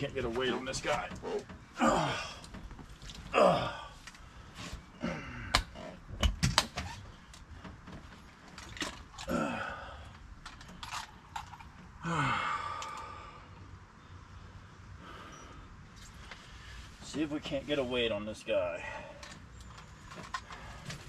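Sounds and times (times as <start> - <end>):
man grunting and sighing: 1.2 - 2.6, 3.3 - 4.0, 4.9 - 5.8, 9.2 - 10.1, 12.0 - 13.4
clicks and knocks of gear: 10.1 - 12.0, 19.2 - 21.0.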